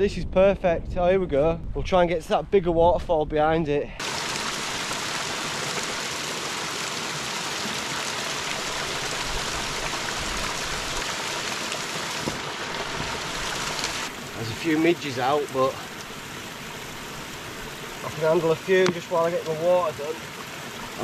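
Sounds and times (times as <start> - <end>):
waterfall splashing over rocks: 4.0 - 21.0.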